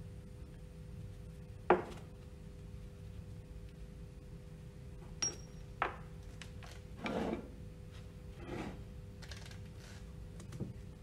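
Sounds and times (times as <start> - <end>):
faint steady hum: 0.0 - 11.0
short rubbing scrapes: 8.4 - 8.9.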